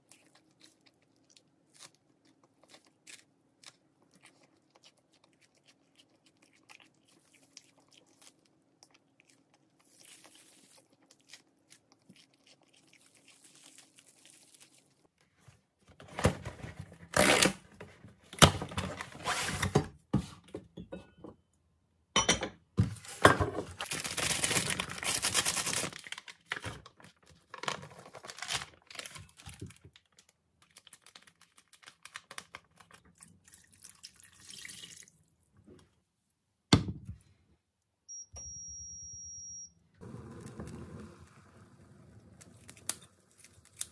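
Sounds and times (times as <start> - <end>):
plastic packaging tearing: 17.0 - 17.6, 23.8 - 33.0, 42.3 - 43.9.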